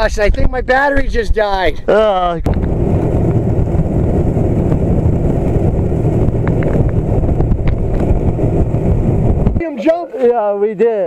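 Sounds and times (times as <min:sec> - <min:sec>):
wind buffeting microphone: 0:00.0 - 0:09.7
boat motor rumbling: 0:02.4 - 0:09.7.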